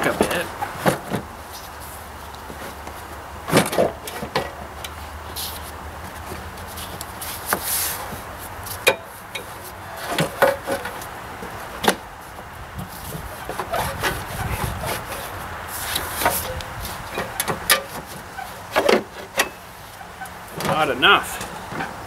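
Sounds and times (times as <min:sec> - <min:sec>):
metal tank scraping against frame: 0:13.0 - 0:19.7.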